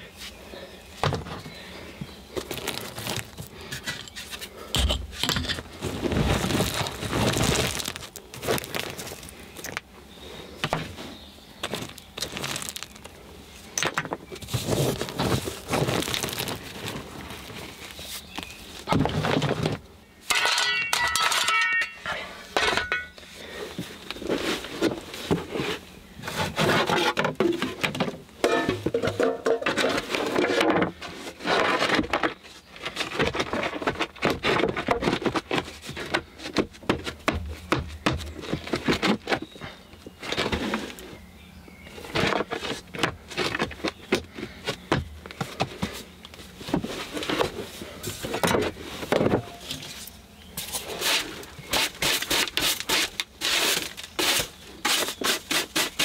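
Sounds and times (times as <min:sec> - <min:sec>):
metallic ring: 0:20.3 - 0:23.2
shovel scraping into stony earth: 0:50.6 - 0:56.0.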